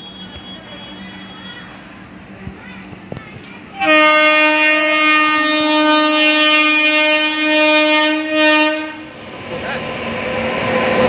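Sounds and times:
locomotive horn blast: 3.8s - 9.1s.

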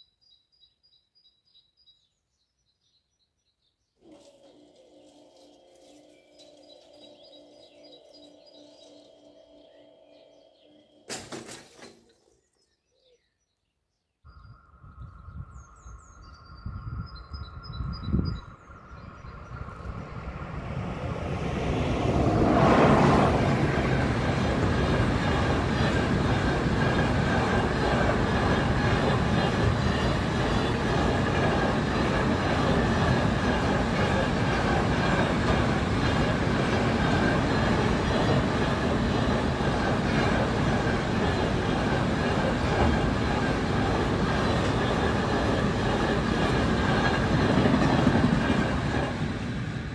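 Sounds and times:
approaching train rumble and whine: 4.0s - 11.9s, 14.3s - 49.9s
birds chirping: 4.8s - 49.3s.

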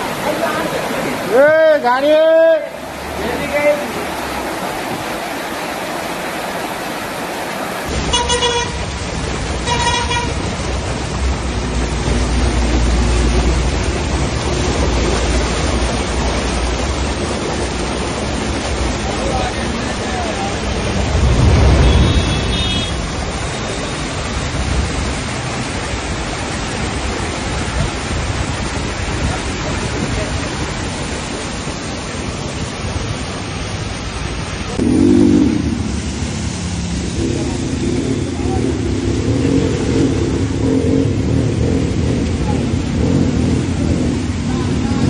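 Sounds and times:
low rumble of street noise: 0.0s - 45.0s
rushing floodwater: 0.0s - 45.0s
vehicle horn honking: 8.1s - 8.8s, 9.6s - 10.4s, 21.7s - 23.0s.

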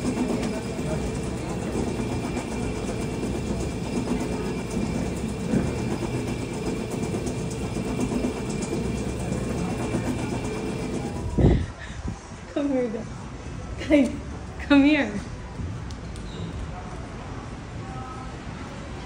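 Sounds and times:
machine motor humming: 0.0s - 11.7s.

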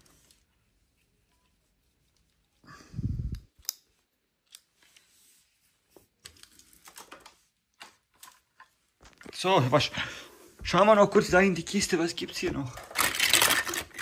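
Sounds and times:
plastic toys clicking and tapping: 12.7s - 14.0s.

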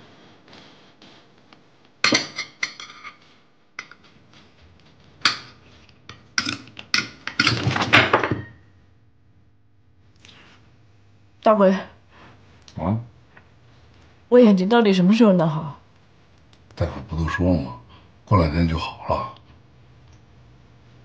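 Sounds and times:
household objects clattering: 5.2s - 8.6s.

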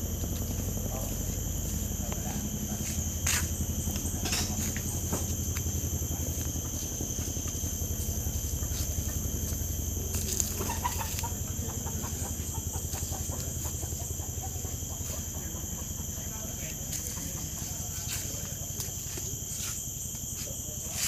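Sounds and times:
high-pitched insect drone: 0.0s - 21.0s
chicken clucking: 10.6s - 16.1s.

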